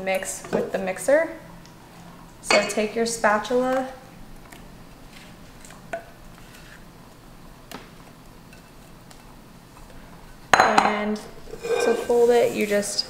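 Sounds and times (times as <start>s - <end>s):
spatula scraping a bowl: 11.4s - 12.9s.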